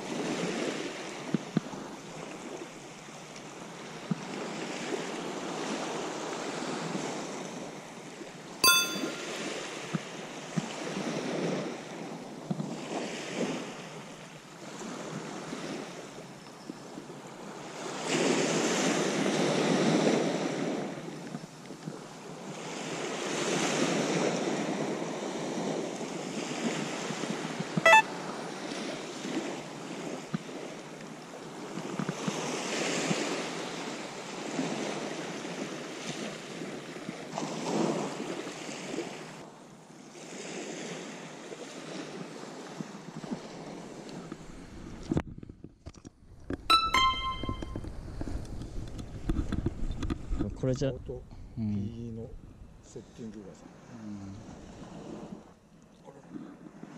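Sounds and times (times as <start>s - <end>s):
small waves on beach: 0.0s - 45.2s, 52.9s - 56.9s.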